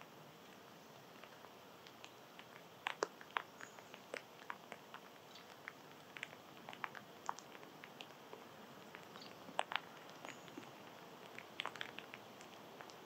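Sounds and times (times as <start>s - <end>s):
small animals cracking seed husks: 0.5s - 13.0s.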